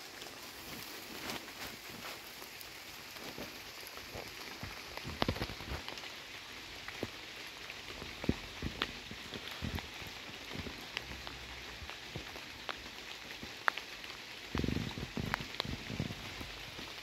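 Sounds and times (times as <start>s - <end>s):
steady rain pattering: 0.0s - 17.0s.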